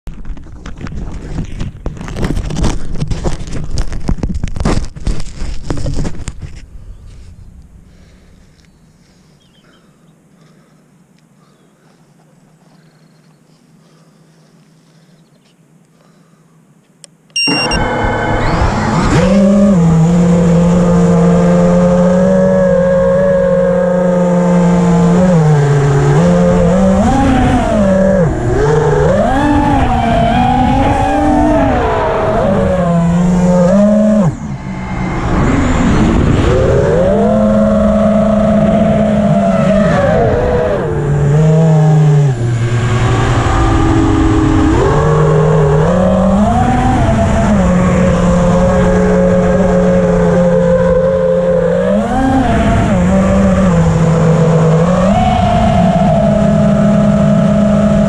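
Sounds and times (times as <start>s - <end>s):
wind noise on microphone: 0.1s - 7.9s
drone motors whining: 17.4s - 58.0s.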